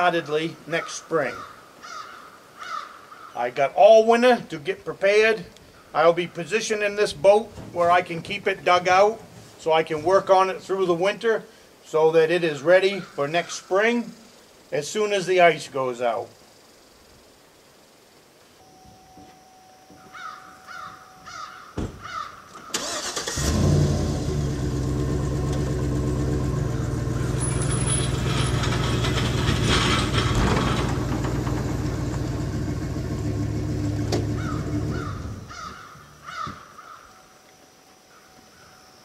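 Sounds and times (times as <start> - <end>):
bird chirping: 18.6 - 22.7
vehicle engine running: 23.4 - 35.6.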